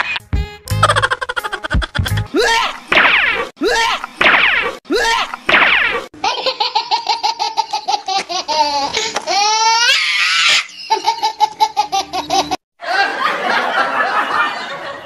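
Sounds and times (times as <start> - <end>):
high-pitched repeated laughter: 0.0 - 2.8, 6.2 - 15.0
many people laughing: 10.8 - 15.0.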